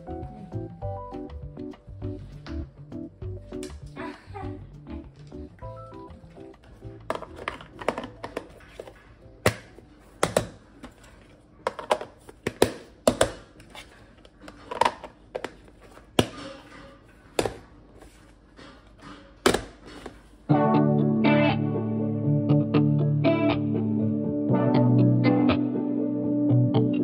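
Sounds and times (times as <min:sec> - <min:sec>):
plastic containers clicking and knocking: 0:06.3 - 0:17.8, 0:18.6 - 0:20.3.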